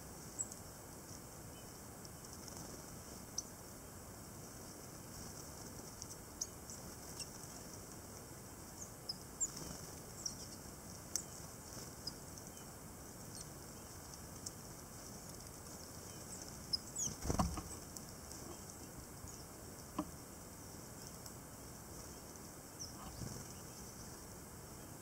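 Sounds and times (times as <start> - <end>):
steady low hiss: 0.0 - 25.0
tits calling: 6.0 - 7.8, 8.4 - 20.0, 21.0 - 25.0.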